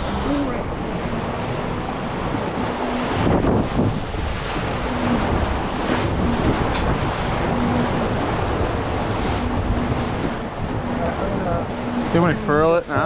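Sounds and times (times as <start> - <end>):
water rushing along hull: 0.0 - 13.0
wind buffeting microphone: 0.0 - 13.0.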